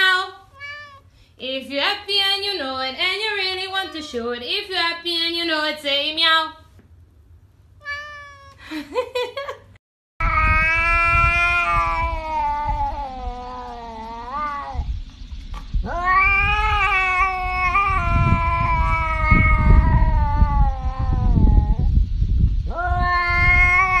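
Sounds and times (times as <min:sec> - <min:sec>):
cat yowling: 0:00.5 - 0:01.1, 0:07.8 - 0:08.6, 0:10.2 - 0:14.9, 0:15.8 - 0:21.9, 0:22.7 - 0:24.0
low rumble: 0:10.2 - 0:24.0.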